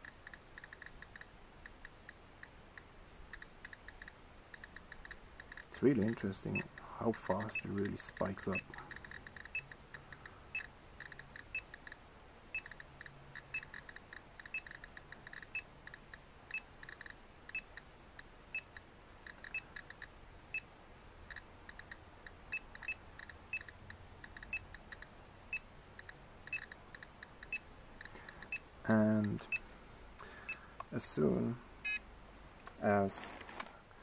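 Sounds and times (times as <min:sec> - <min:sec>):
geiger counter beeping: 0:08.4 - 0:09.8.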